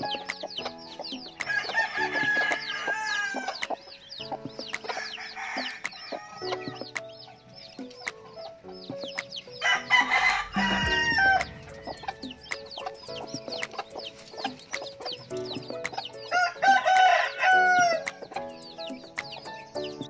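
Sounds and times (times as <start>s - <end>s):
chicks peeping: 0.0s - 20.0s
soft background music: 0.0s - 20.0s
rooster crowing: 9.6s - 11.6s, 16.3s - 18.0s.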